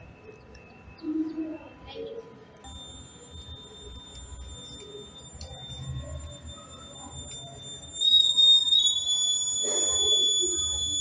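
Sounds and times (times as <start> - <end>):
high-pitched electronic buzzer alarm: 2.7 - 11.0.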